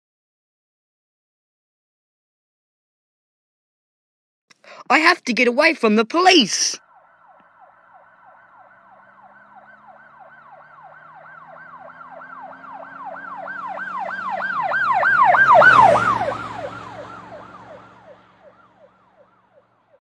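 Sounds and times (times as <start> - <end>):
police siren yelping: 6.3 - 19.9.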